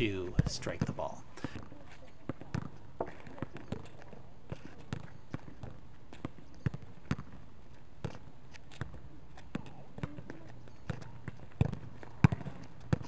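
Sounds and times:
ball bouncing on asphalt: 0.0s - 13.0s
soccer ball thudding against wall: 4.9s - 7.4s, 10.9s - 13.0s.

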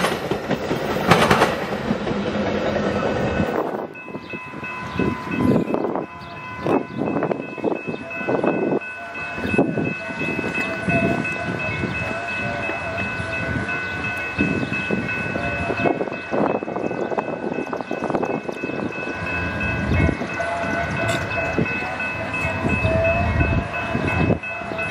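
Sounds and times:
crossing warning bells ringing: 0.0s - 24.9s
train rumble and clatter: 0.0s - 24.9s.

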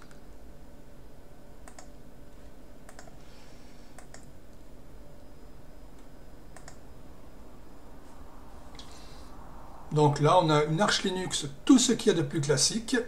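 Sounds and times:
low background hum: 0.0s - 13.0s
computer mouse clicks: 1.6s - 2.0s, 2.9s - 3.2s, 3.9s - 4.3s, 6.0s - 6.8s.

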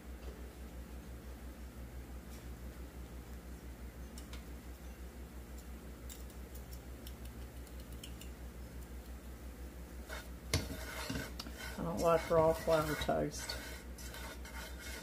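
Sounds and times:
whisk scraping skillet: 10.0s - 15.0s.

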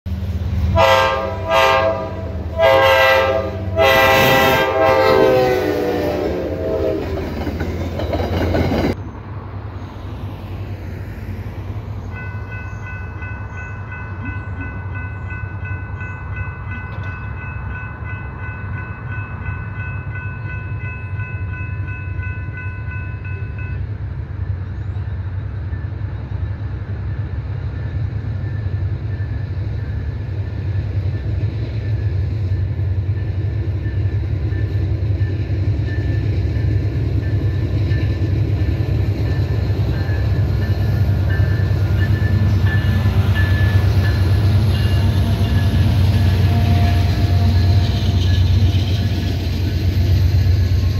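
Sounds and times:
train horn blasts: 0.6s - 7.4s, 41.3s - 48.7s
level crossing warning bell: 12.1s - 24.0s, 39.2s - 48.7s.

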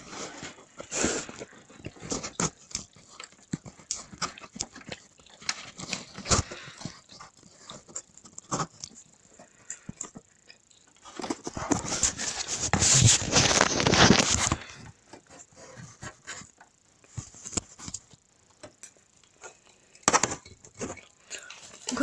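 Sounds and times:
rustling and rubbing: 0.0s - 9.6s, 11.0s - 18.4s.

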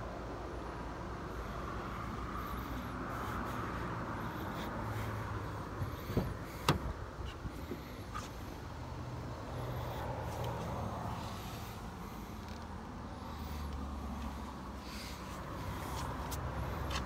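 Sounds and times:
steady outdoor hum: 0.0s - 17.0s
car door latch clicks: 6.1s - 7.0s.

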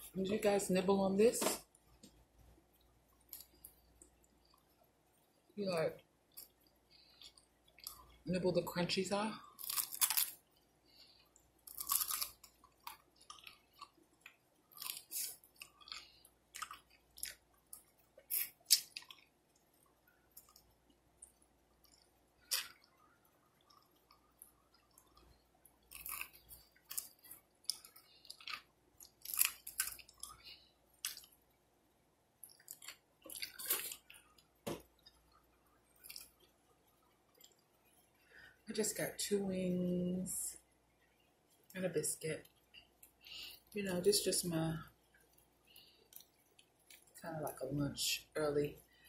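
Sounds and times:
chewing crispy chicken: 6.3s - 8.2s, 9.4s - 31.4s, 32.4s - 38.0s.

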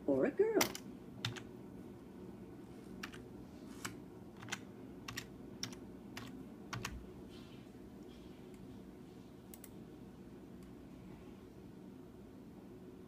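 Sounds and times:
faint steady hum: 0.0s - 13.0s
keyboard keys clicking: 0.6s - 1.5s, 3.0s - 3.2s, 3.8s - 7.0s.

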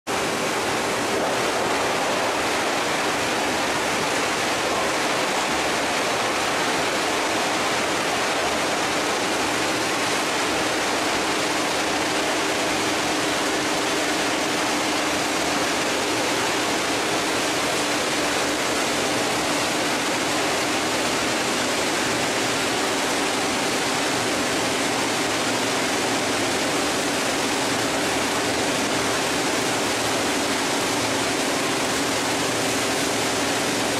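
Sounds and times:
machinery rushing noise: 0.1s - 23.3s.

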